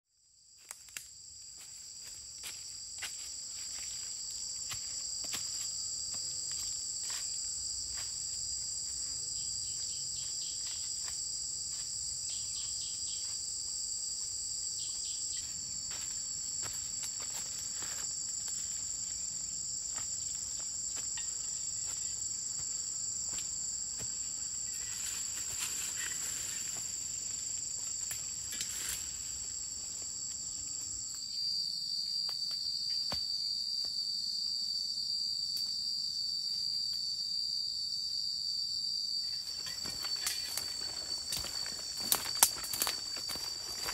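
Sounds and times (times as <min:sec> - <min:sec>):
insects droning: 0:00.2 - 0:43.9
leaves rustling: 0:24.0 - 0:30.3, 0:39.4 - 0:43.9.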